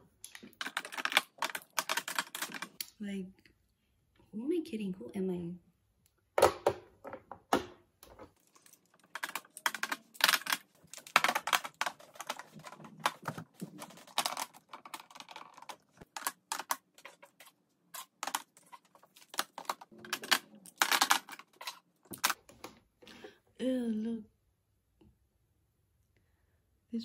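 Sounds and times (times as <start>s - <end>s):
plastic cases clicking on acrylic: 0.3s - 2.9s, 8.0s - 22.4s.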